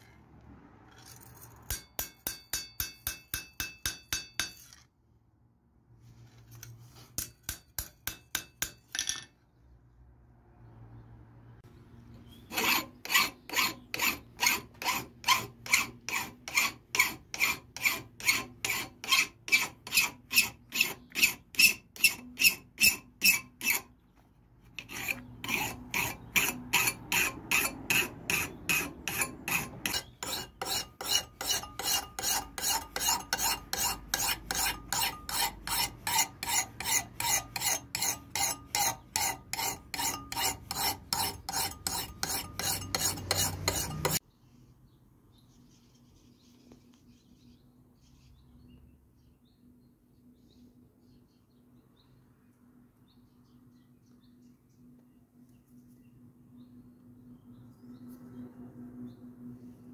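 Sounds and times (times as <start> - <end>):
hand file rasping on metal blade: 1.7 - 4.8, 6.5 - 8.8, 12.4 - 23.9, 24.8 - 44.2.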